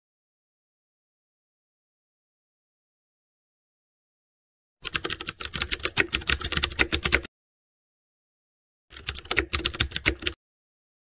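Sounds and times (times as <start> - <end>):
keyboard typing clicks: 4.8 - 7.3, 8.9 - 10.4.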